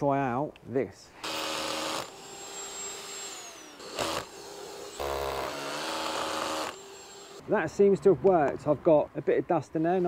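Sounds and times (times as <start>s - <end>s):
rotary hammer drilling into brick: 1.2s - 7.4s.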